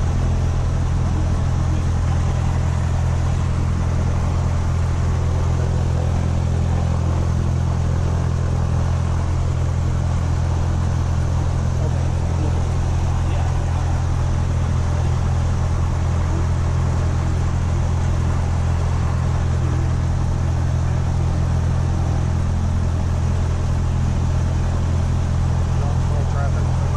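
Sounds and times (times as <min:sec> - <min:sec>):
aircraft engine droning: 0:00.0 - 0:26.9.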